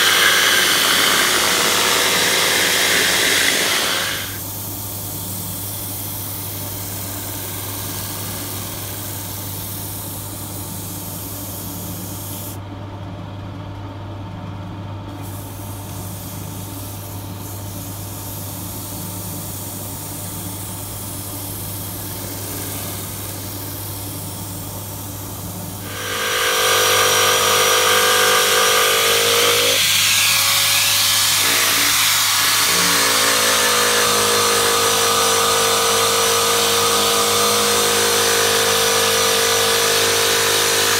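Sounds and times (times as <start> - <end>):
electric drill whining: 0.0 - 4.4, 25.8 - 40.9
wood lathe humming: 0.0 - 4.5, 6.3 - 9.4, 21.8 - 40.9.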